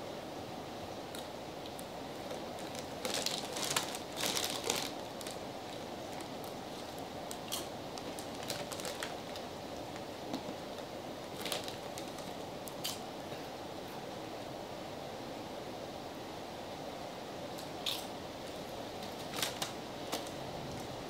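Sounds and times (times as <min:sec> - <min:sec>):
steady hiss: 0:00.0 - 0:21.0
chip bags crackling: 0:02.2 - 0:13.0, 0:17.9 - 0:20.4.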